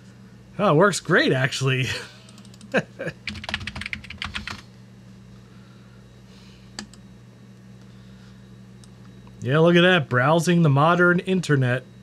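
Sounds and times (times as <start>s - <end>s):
steady low hum: 0.0s - 12.0s
keyboard typing: 2.3s - 4.6s.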